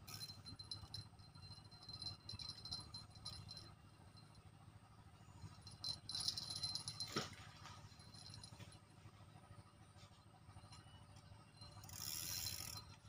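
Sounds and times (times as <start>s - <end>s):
reel ticking: 0.0s - 4.4s, 11.5s - 13.0s
fishing line hissing off reel: 11.8s - 12.8s.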